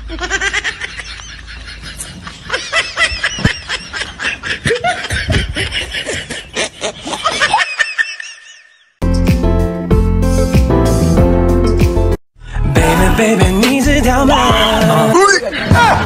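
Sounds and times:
giggling and snickering laughter: 0:00.0 - 0:08.9
music with a steady beat: 0:09.0 - 0:15.1.

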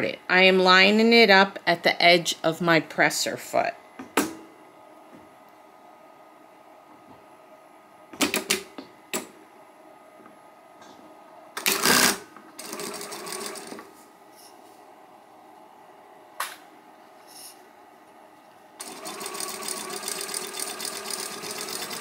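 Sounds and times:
sewing machine stitching: 0:11.6 - 0:13.8, 0:18.8 - 0:22.0.

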